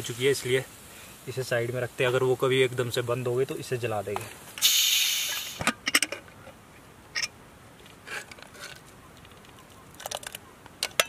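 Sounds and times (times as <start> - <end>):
steam hissing from pressure cooker: 4.6 - 5.7
clicks and clinks of metal pots: 10.0 - 11.0.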